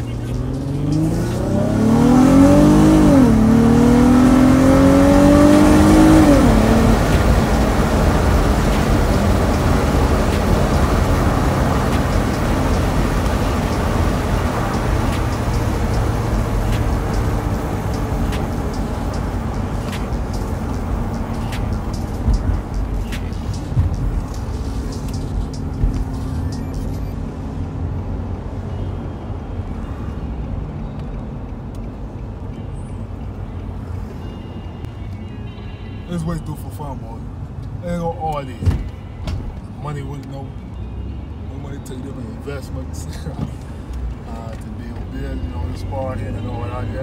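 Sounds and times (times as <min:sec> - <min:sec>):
car engine accelerating: 0:00.0 - 0:28.2
road noise drone: 0:00.0 - 0:47.0.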